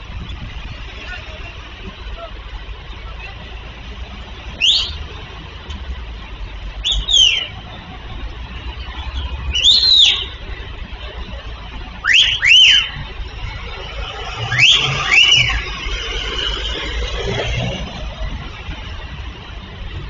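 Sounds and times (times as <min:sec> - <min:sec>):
street traffic rumble: 0:00.0 - 0:20.0
whistled calls: 0:04.5 - 0:05.0, 0:06.8 - 0:07.7, 0:09.1 - 0:10.4, 0:12.0 - 0:13.0, 0:14.0 - 0:17.4.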